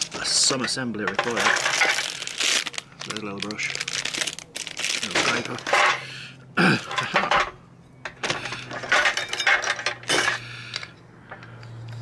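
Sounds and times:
sheet metal parts clattering: 0.2s - 2.1s, 5.1s - 6.1s, 6.8s - 10.5s.

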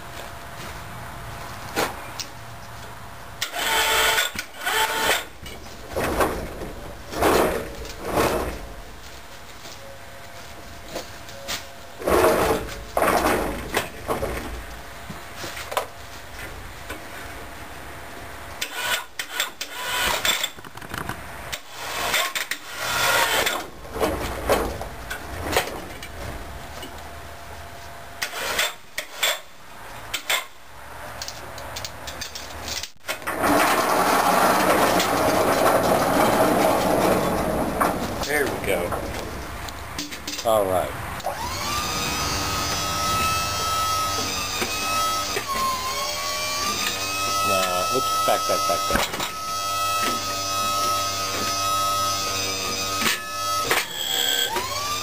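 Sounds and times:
loud machine noise: 3.4s - 5.3s, 33.3s - 39.1s, 40.8s - 55.0s.

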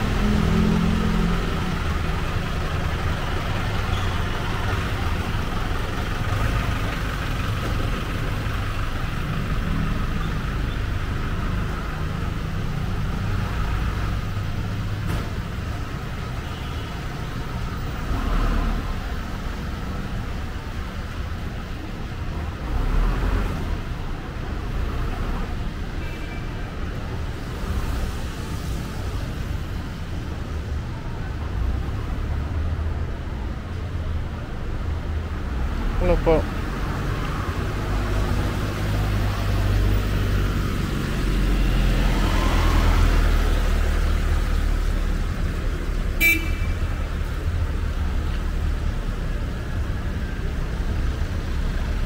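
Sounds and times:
vehicle engines idling: 0.0s - 25.9s, 42.7s - 52.0s
vehicles passing close by: 0.0s - 52.0s.

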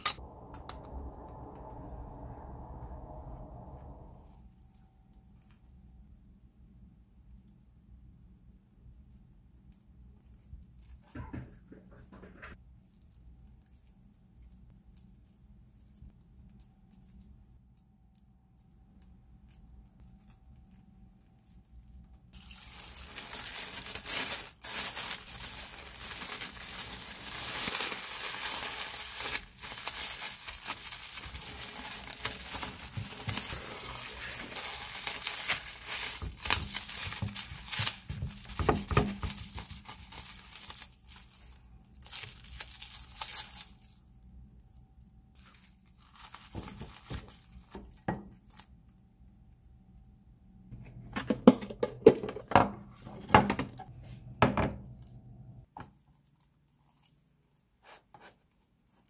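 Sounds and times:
baking paper crinkling: 18.6s - 48.8s.

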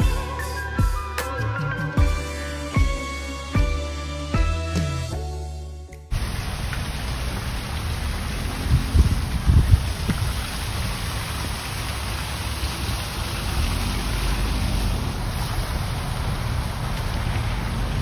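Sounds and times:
fountain splashing: 6.1s - 18.0s.

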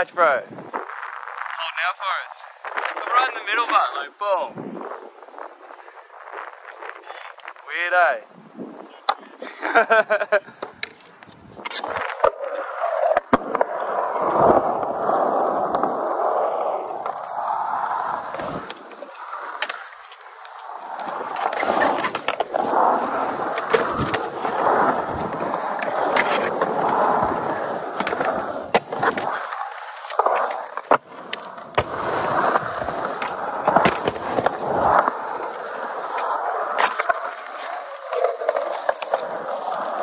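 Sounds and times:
skateboard wheels rolling on concrete: 0.0s - 40.0s
skateboard clacks: 15.6s - 40.0s.

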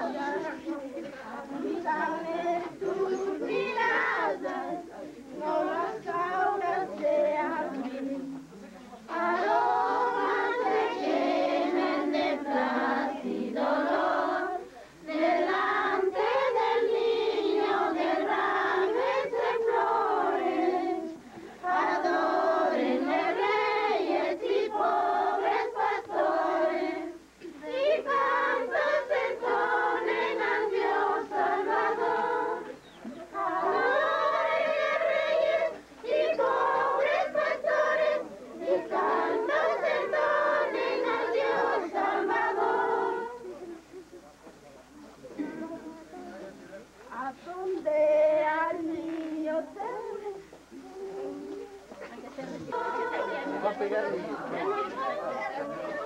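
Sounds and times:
group singing unaccompanied: 0.0s - 44.1s, 45.3s - 56.0s.

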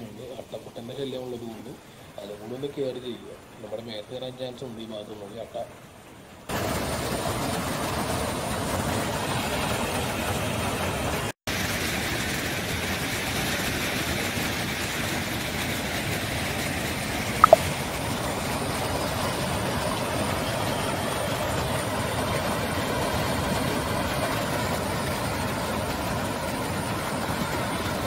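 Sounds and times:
water rushing over rocks: 17.4s - 17.6s.

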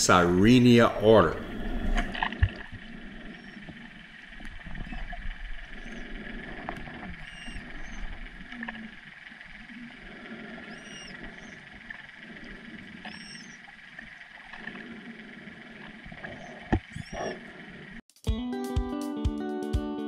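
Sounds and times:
manatee squeaks: 1.4s - 17.9s
guitar music: 18.2s - 20.0s.

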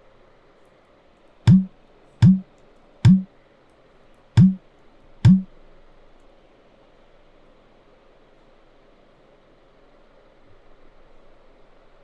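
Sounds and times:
heavy laptop key presses: 1.5s - 2.4s, 4.4s - 4.6s.

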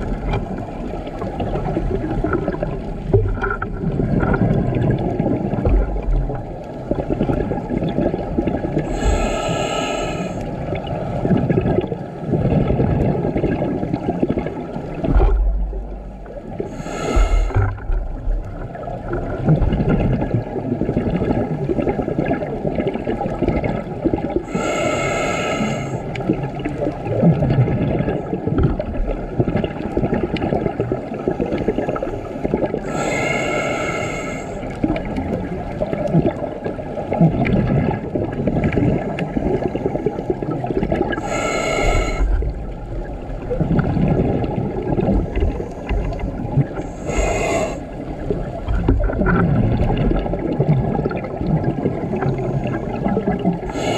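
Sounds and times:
exhaled bubbles gurgling: 0.0s - 53.9s
regulator hiss on inhalation: 8.9s - 10.4s, 16.7s - 17.7s, 24.5s - 26.0s, 32.9s - 34.6s, 41.2s - 42.4s, 46.9s - 47.8s, 53.7s - 53.9s.

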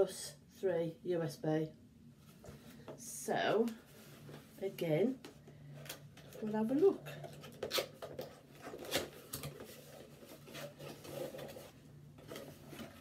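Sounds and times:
packaging scraping and rustling: 6.2s - 13.0s.

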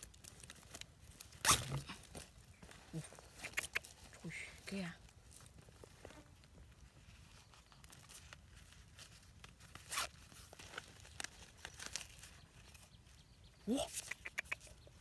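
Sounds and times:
tearing rasp: 1.3s - 2.1s
fabric wallet handling: 7.9s - 12.4s.

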